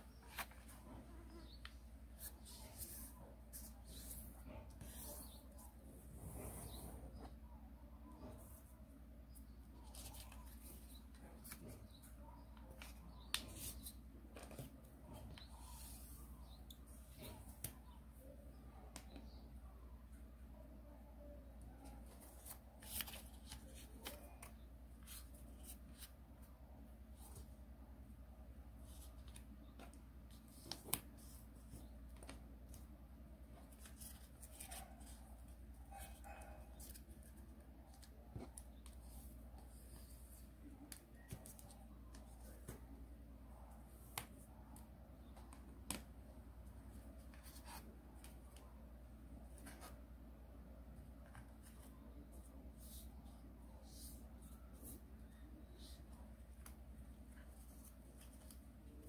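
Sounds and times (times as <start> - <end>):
paper rustling as it is folded: 0.1 - 5.7, 33.6 - 42.9.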